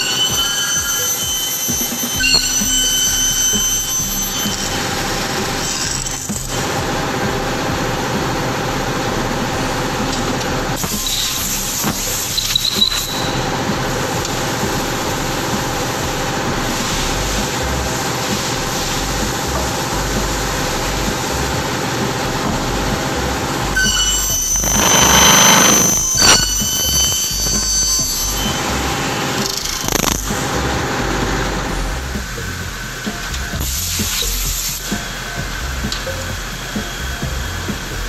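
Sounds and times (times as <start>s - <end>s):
saw blade screeching on metal: 0.0s - 6.5s, 10.8s - 19.7s, 23.8s - 30.4s
circular saw running: 0.0s - 38.0s.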